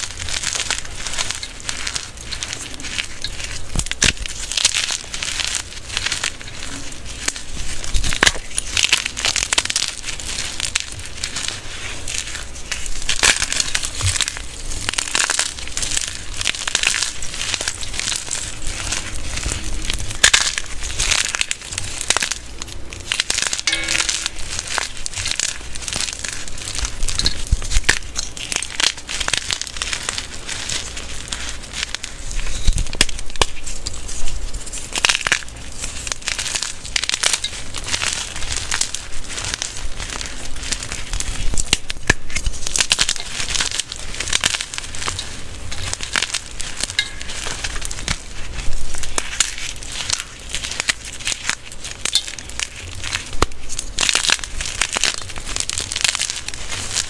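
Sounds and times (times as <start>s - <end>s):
chalk crushed between hands: 0.0s - 57.0s.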